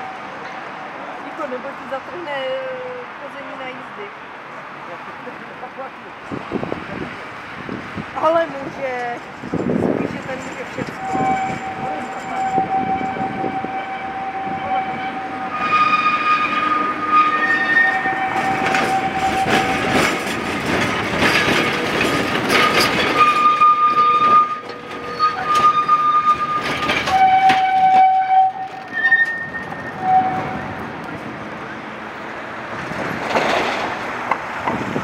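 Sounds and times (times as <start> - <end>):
tram wheels squealing: 0.0 - 1.7, 9.0 - 30.9
wheels clacking over rail joints: 8.2 - 35.0.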